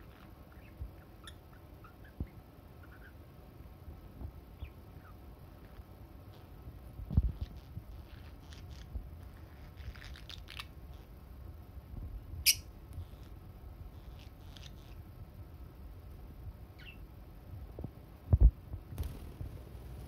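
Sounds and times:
birds chirping: 0:00.0 - 0:03.2, 0:16.7 - 0:17.1.

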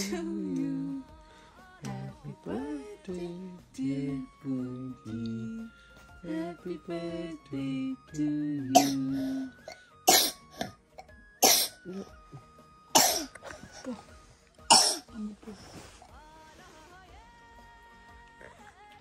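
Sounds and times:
faint background music: 0:00.0 - 0:19.0
person coughing: 0:08.7 - 0:10.8, 0:11.4 - 0:12.1, 0:13.0 - 0:14.1, 0:14.7 - 0:15.2.

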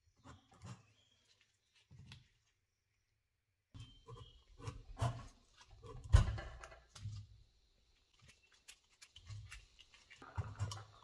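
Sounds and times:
wires rubbing and crinkling: 0:07.9 - 0:11.0.

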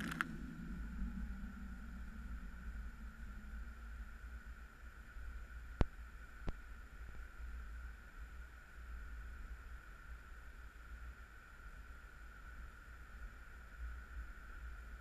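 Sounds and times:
sharp clicks: 0:00.0 - 0:00.3.

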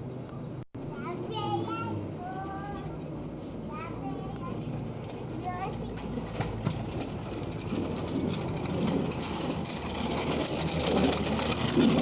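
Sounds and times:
small bicycle rattling over concrete: 0:04.0 - 0:12.0.

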